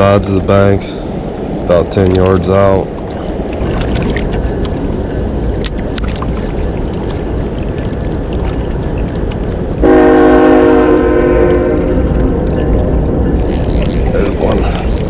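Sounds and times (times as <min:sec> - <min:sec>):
rushing water: 0:00.0 - 0:15.0
loud horn blast: 0:09.8 - 0:12.1.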